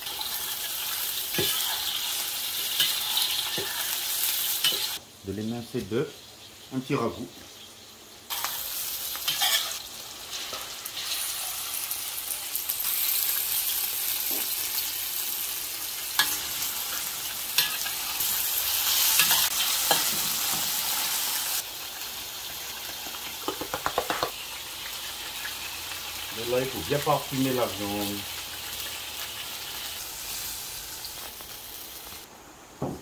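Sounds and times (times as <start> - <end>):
food sizzling in wok: 0.0 - 33.0
metal spatula scraping pan: 9.3 - 10.6.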